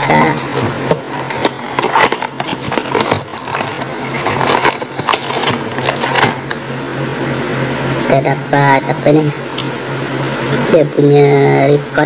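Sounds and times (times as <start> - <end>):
cardboard and plastic packaging rustling: 1.2 - 6.6.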